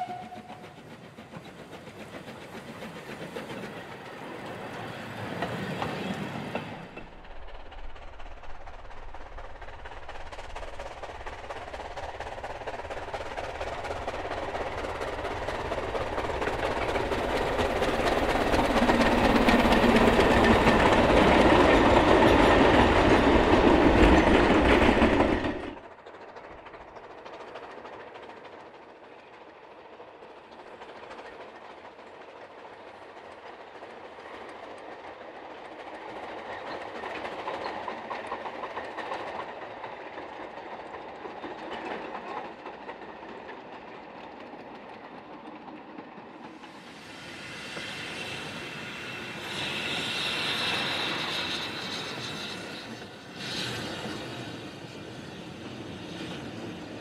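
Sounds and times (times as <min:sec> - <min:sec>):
distant train wagons rolling: 0:00.0 - 0:57.0
steam locomotive pulling wagons: 0:00.0 - 0:57.0.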